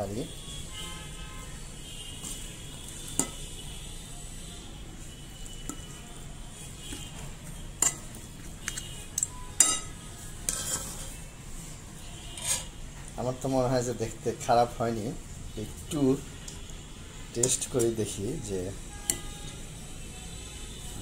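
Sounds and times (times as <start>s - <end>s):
spoon scraping ceramic plate: 9.6s - 11.2s, 12.3s - 12.8s.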